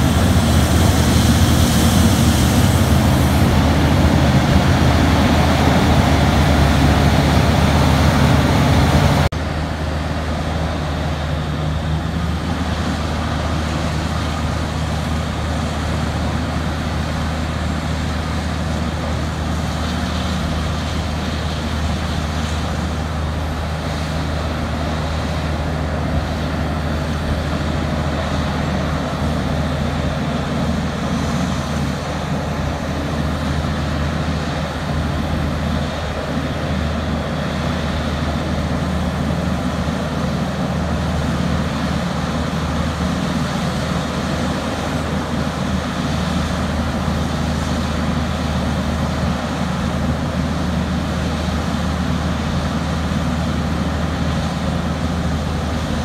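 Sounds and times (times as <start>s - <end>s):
deep diesel engine drone: 0.0s - 56.0s.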